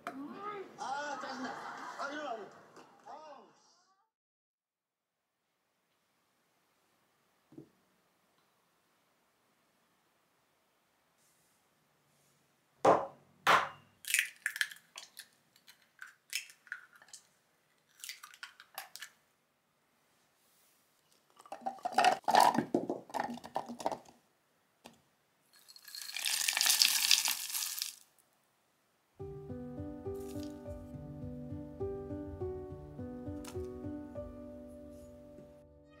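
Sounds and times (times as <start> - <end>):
eggs being cracked: 14.0 - 19.2, 21.2 - 24.1, 25.6 - 28.1
small clicks and drips: 25.5 - 28.0
sliced almonds pouring in: 25.6 - 28.1.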